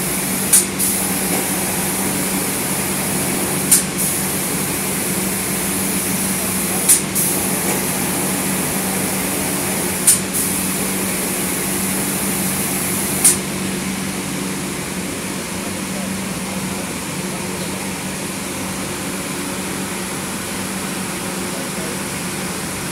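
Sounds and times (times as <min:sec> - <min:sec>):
high hiss of air: 0:00.0 - 0:13.5
sharp spray bursts: 0:00.0 - 0:13.5
low machine hum: 0:00.0 - 0:20.6.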